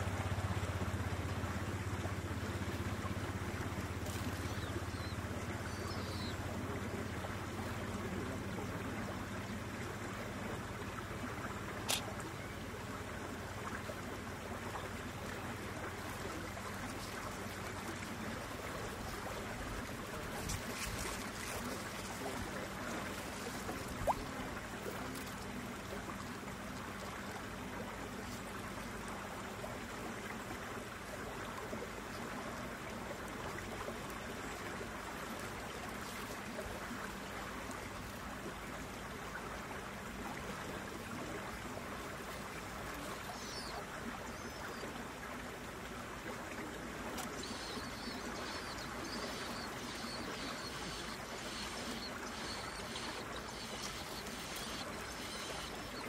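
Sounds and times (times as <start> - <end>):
flowing water rushing: 0.0 - 56.0
sharp click: 11.9 - 12.1.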